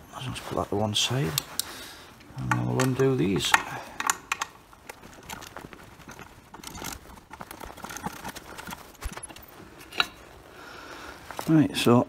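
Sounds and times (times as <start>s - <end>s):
allen key clicking on bolts: 2.4s - 4.6s.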